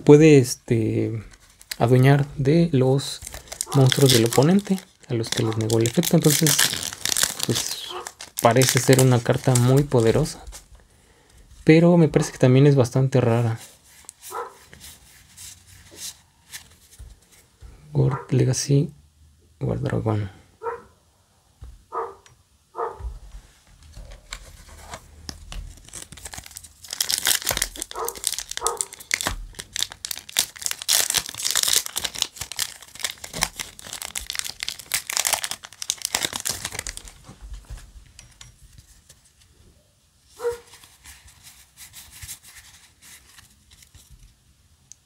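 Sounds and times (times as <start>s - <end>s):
foil wrapper tearing and crinkling: 1.3s - 2.1s, 3.0s - 10.4s, 25.3s - 37.3s
cards being handled: 3.0s - 10.7s, 13.6s - 17.6s, 23.9s - 37.8s, 40.4s - 44.4s.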